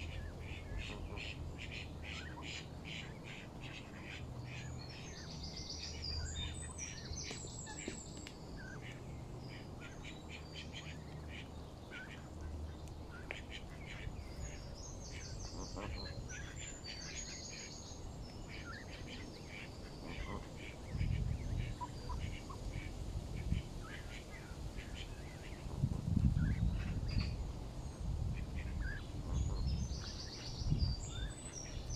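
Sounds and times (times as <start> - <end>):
birds chirping: 0.0 - 31.9.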